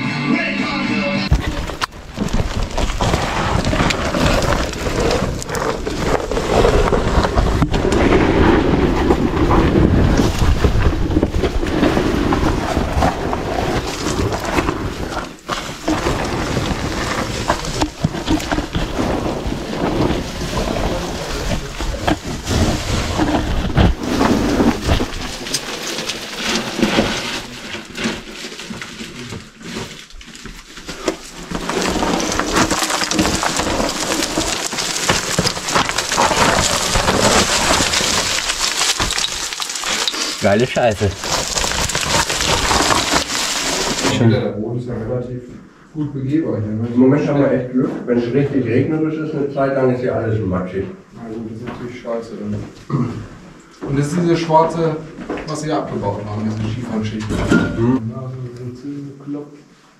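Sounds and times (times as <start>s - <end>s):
rubbing and knocks on microphone: 1.3s - 28.4s
gravel and stones crunching: 1.3s - 44.3s.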